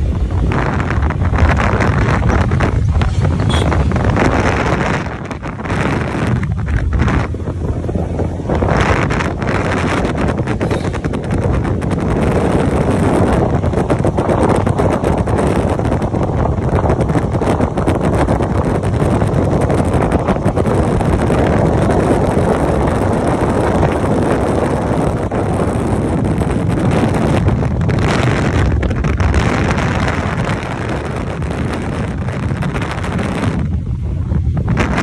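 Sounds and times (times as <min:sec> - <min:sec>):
motorcycle engine running: 0:00.0 - 0:35.0
wind rushing on microphone: 0:00.0 - 0:35.0.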